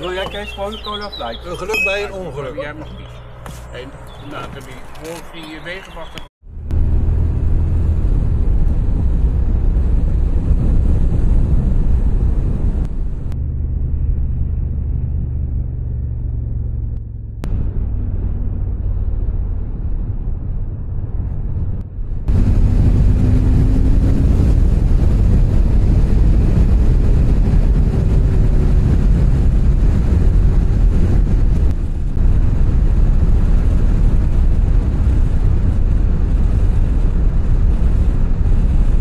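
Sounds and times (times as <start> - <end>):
wind rumble: 0.0 - 39.0.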